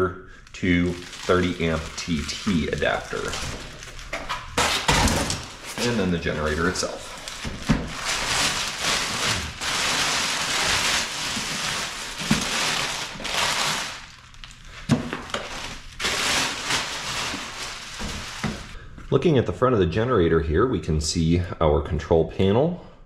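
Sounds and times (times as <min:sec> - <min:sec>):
plastic wrap crinkling: 0:00.4 - 0:18.8.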